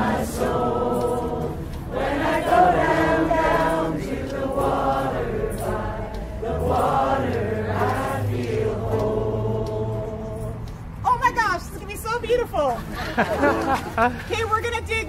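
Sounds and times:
crowd singing: 0.0s - 11.0s.

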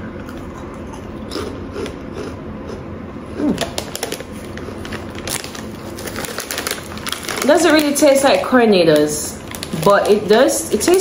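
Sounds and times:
crunchy snack being chewed: 0.2s - 7.5s.

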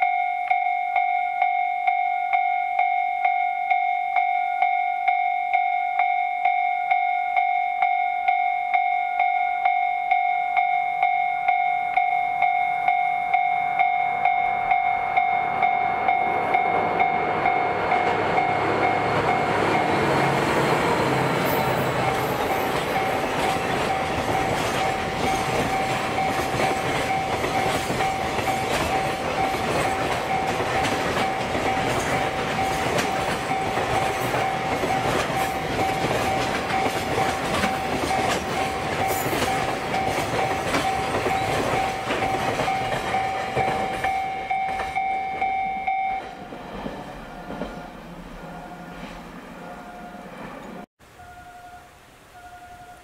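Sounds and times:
steady high tone: 0.0s - 53.0s
freight train wheels clattering: 16.1s - 45.5s.

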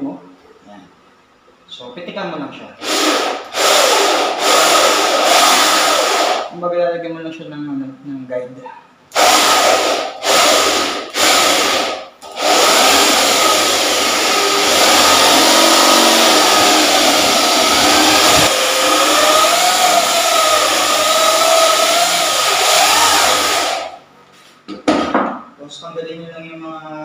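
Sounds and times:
drill trigger pulses: 2.8s - 6.5s, 9.1s - 24.0s
electric drill boring into wood: 2.8s - 6.5s, 9.1s - 24.0s.

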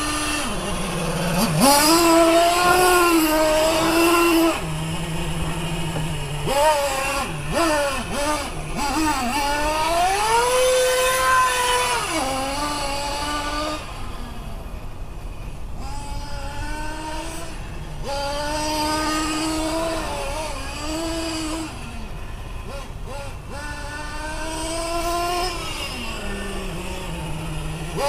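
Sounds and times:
rc car engine revving: 0.0s - 14.7s, 15.5s - 28.0s.

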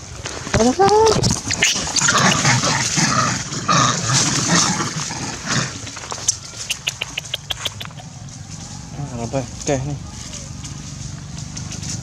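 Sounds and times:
dry leaves crackling: 0.0s - 12.0s
macaques growling threat calls: 1.4s - 9.0s.

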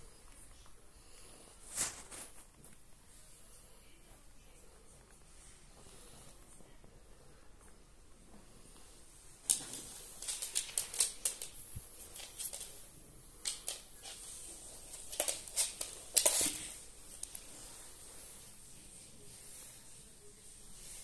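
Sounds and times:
dog fur rustling on microphone: 1.6s - 2.8s.

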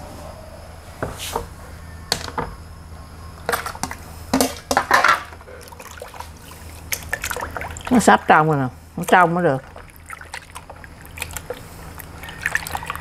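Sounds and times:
water splashing and sloshing: 5.3s - 13.0s.

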